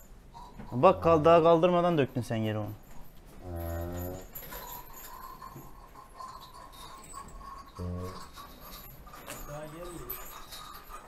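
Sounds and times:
cow lowing: 0:03.4 - 0:04.6.

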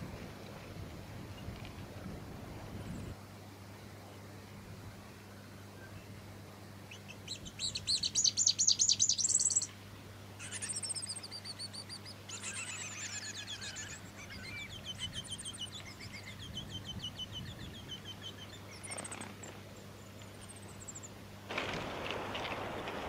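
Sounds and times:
fairywren trills and chirps: 0:06.9 - 0:09.7, 0:10.4 - 0:21.2.

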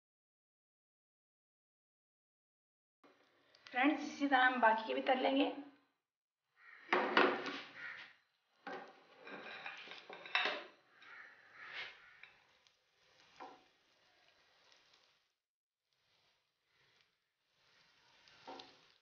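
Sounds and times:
oil sizzling: 0:07.6 - 0:19.0
metal spatula scraping frying pan: 0:08.7 - 0:15.3, 0:17.5 - 0:19.0.

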